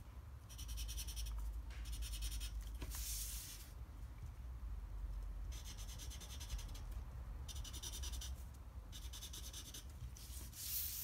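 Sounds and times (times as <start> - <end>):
marker scribbling on paper: 0.5 - 3.6, 5.5 - 6.9, 7.5 - 11.0
paper sliding across table: 2.8 - 3.7, 10.2 - 11.0.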